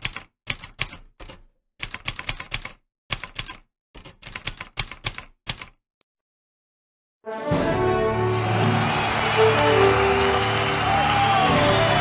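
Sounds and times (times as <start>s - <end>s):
typewriter key clacks: 0.0s - 5.8s.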